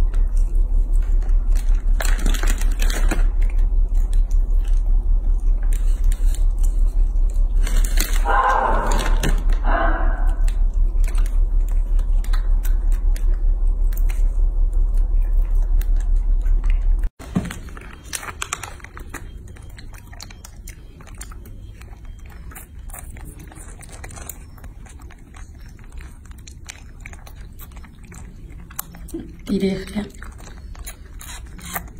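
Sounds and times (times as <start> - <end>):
loud low throbbing hum: 0.0 - 17.1
monkeys chewing clicks: 0.0 - 31.9
monkeys chewing plastic pouch: 0.0 - 31.9.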